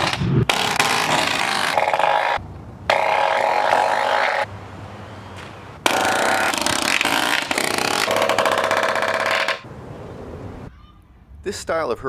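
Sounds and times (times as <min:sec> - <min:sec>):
pneumatic nailer hammering nails: 0:00.0 - 0:04.4, 0:05.8 - 0:09.6.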